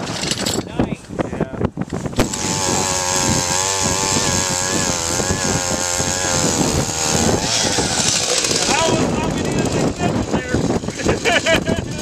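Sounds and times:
ice auger engine running: 2.2 - 11.6.

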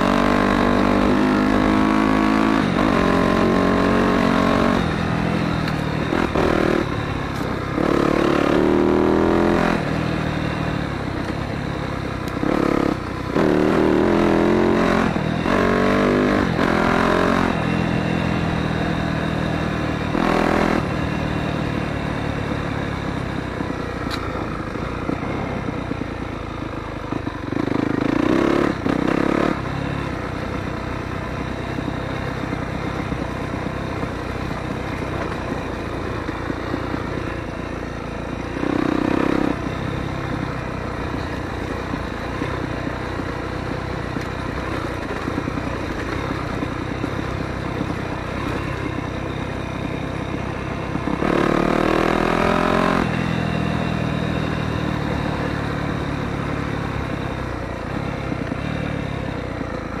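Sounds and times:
motocross bike engine revving: 0.0 - 11.0, 12.4 - 22.4, 27.5 - 29.8, 35.2 - 40.3, 50.4 - 57.2.

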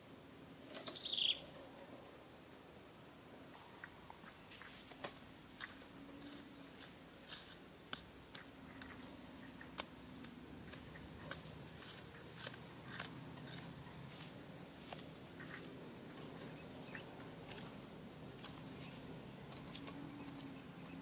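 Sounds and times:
hand tool scraping dry dirt: 4.5 - 16.3, 17.4 - 17.8.

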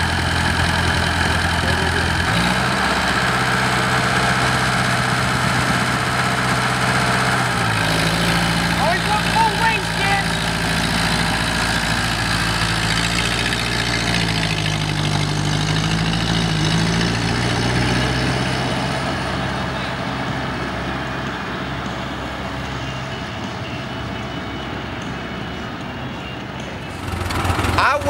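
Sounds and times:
tractor engine driving past: 0.0 - 28.0.

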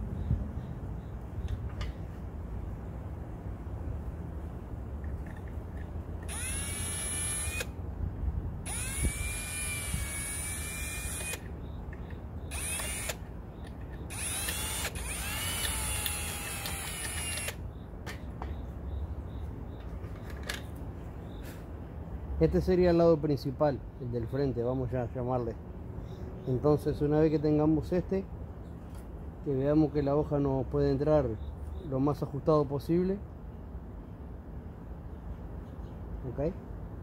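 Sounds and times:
electric drill whining: 6.2 - 7.8, 8.6 - 11.5, 12.5 - 13.3, 14.1 - 17.6.

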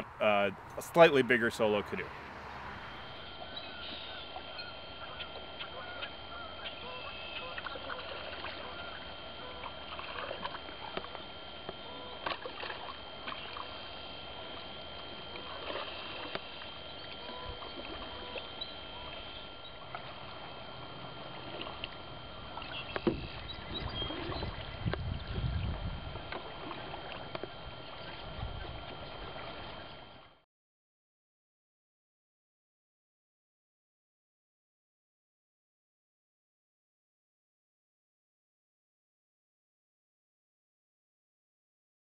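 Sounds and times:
paddle strokes in water: 1.9 - 30.3.

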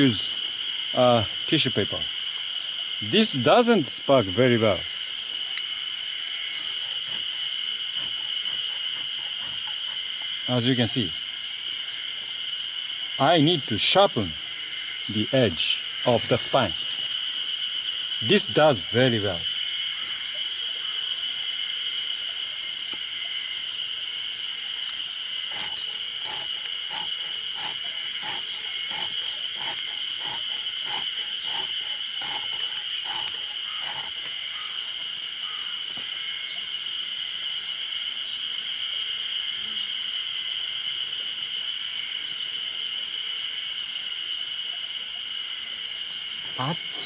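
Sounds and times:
insects trilling: 0.0 - 47.0
knife scraping: 25.5 - 34.4.

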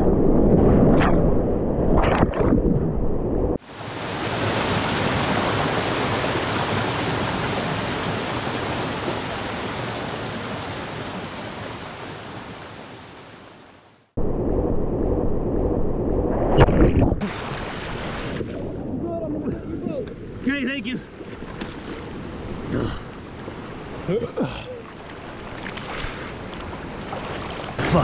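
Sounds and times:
churning river water: 3.6 - 13.8, 16.6 - 28.0
whitewater rapids rushing: 3.7 - 13.2
sharp water splashes: 16.6 - 18.8, 24.8 - 28.0.

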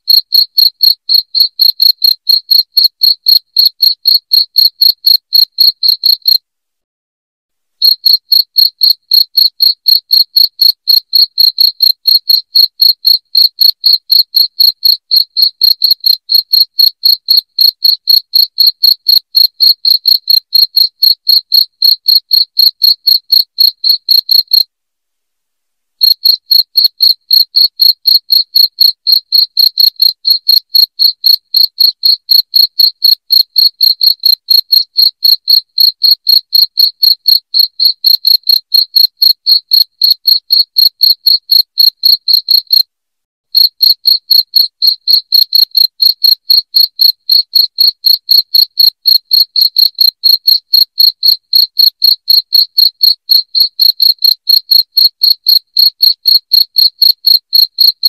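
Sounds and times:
crickets chirping: 26.2 - 28.0.

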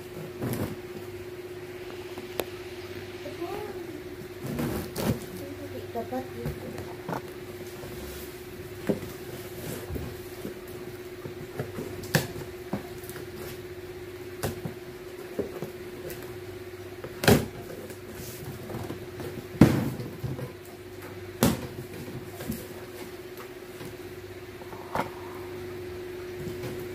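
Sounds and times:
steady low hum: 0.0 - 26.9
cardboard flaps scraping and knocking: 0.1 - 1.0.

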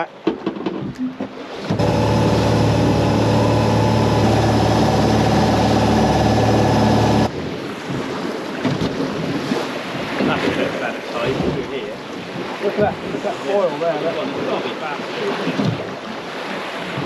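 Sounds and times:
sea: 0.0 - 17.0
wind: 0.0 - 17.0
boat engine running: 1.1 - 7.8.

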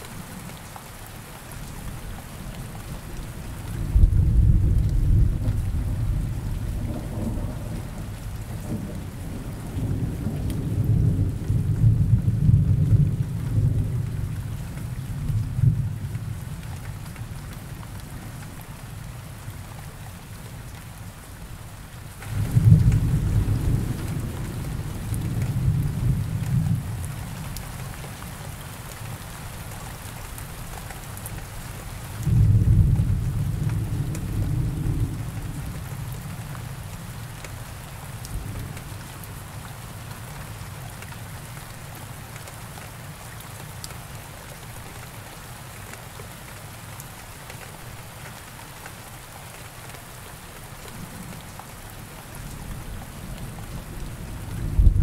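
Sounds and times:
steady rain: 0.0 - 55.0
thunder rumbling: 3.8 - 14.2, 22.3 - 27.0, 32.2 - 36.2, 52.4 - 55.0.

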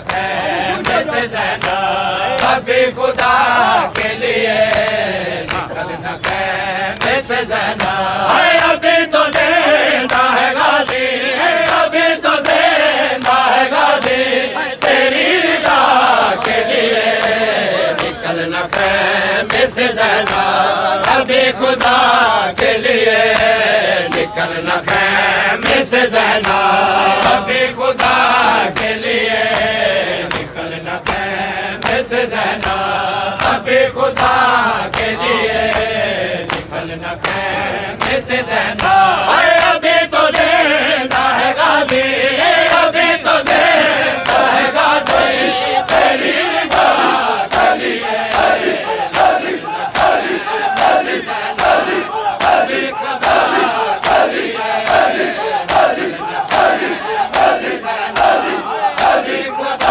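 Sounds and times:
chest-beating slaps: 0.0 - 7.2, 7.8 - 27.4, 28.0 - 33.6
men chanting a lament in chorus: 0.0 - 59.9.

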